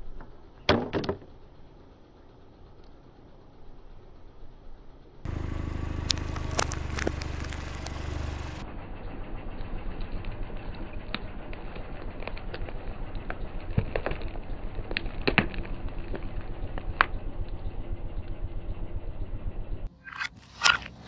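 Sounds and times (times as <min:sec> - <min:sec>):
car engine idling: 0:01.3 - 0:20.0
plastic caps cracking under tyre: 0:05.3 - 0:08.5, 0:11.1 - 0:17.2.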